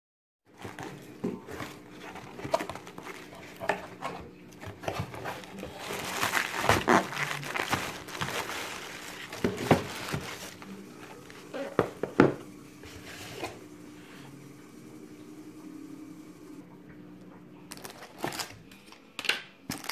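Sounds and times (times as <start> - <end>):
plastic packing crinkling: 0.5 - 11.9, 17.7 - 19.0, 19.7 - 19.9
cardboard box being opened: 0.6 - 11.3
boxes knocking on wooden floor: 9.3 - 10.4.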